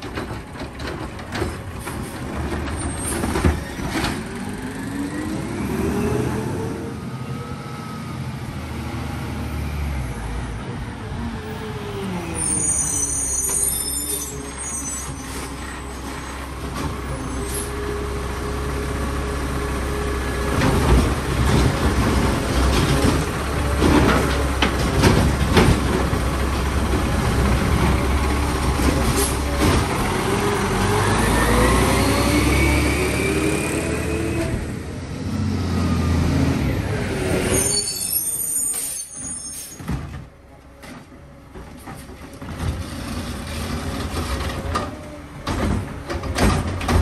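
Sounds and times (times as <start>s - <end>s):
engine revving whine: 4.1s - 10.3s, 29.8s - 37.5s.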